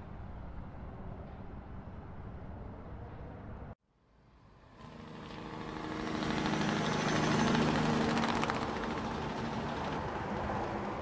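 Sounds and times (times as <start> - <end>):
truck engine hum: 4.2 - 11.0.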